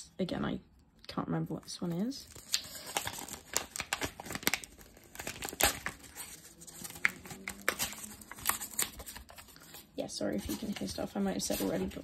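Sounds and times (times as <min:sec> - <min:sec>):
packaging tearing and crinkling: 0:02.2 - 0:09.8.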